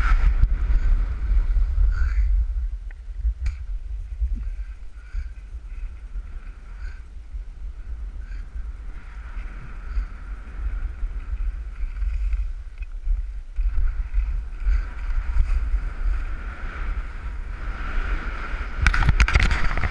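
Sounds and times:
wind buffeting microphone: 0:00.0 - 0:19.9
skis sliding on packed snow: 0:09.0 - 0:19.9.

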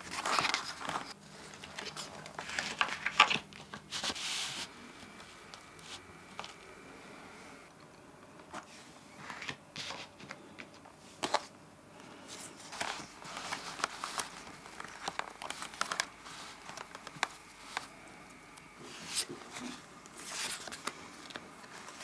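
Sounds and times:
photo paper rustling: 0:00.0 - 0:06.7, 0:12.2 - 0:22.0.

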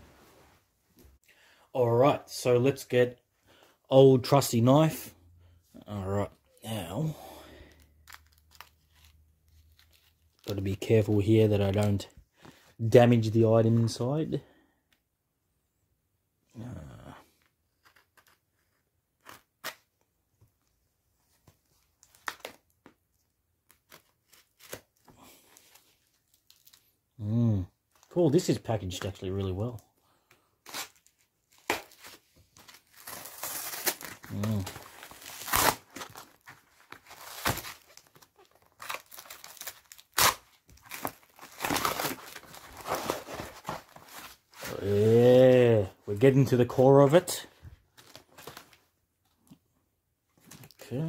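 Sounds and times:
cardboard tearing and crinkling: 0:23.8 - 0:25.8, 0:30.6 - 0:45.2
sharp tearing noise: 0:32.9 - 0:36.1, 0:38.8 - 0:43.3.

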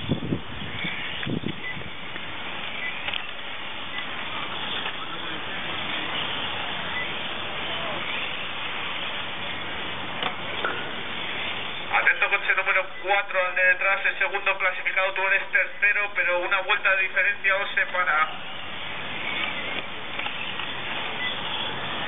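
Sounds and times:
steady outdoor hiss: 0:00.0 - 0:22.0
person speaking: 0:11.9 - 0:18.4.

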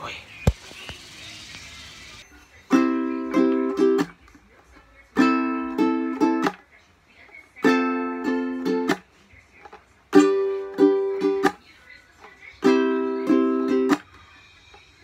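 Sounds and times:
ukulele strumming chords: 0:02.6 - 0:04.4, 0:05.1 - 0:06.7, 0:07.6 - 0:11.6, 0:12.2 - 0:14.2.

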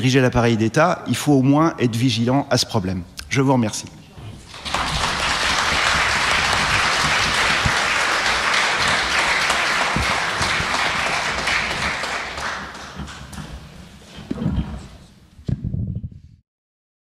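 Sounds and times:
audience applauding: 0:04.4 - 0:13.6.

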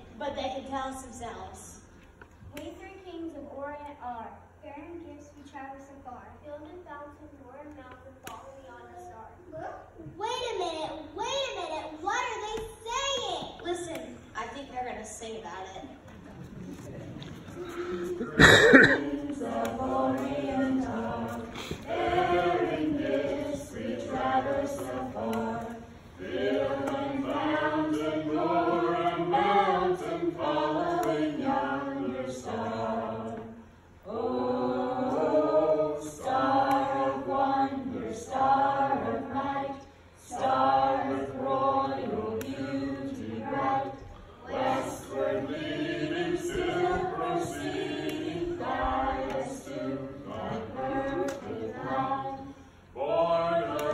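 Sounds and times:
children singing together: 0:17.5 - 0:53.9.

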